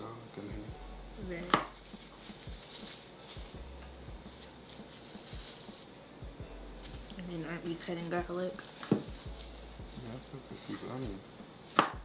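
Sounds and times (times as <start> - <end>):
knife tapping on cutting board: 11.7 - 12.0.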